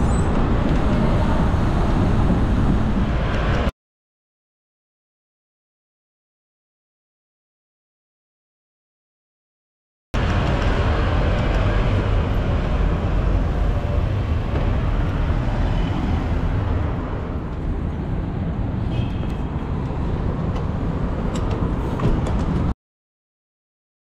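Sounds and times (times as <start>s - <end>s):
road traffic rumble: 0.0s - 3.7s, 10.2s - 22.8s.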